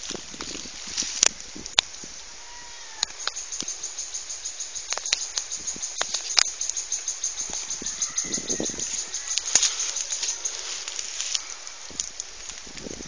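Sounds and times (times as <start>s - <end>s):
fast high-pitched chirping: 3.0s - 11.6s
sharp clicks: 4.8s - 7.8s.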